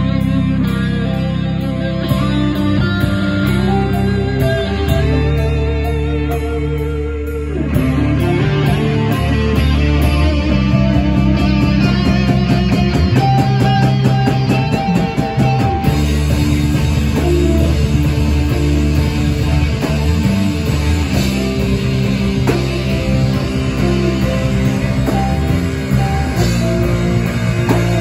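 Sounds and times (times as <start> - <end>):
rock band playing live: 0.0 - 28.0
drum cymbal pattern: 11.9 - 28.0.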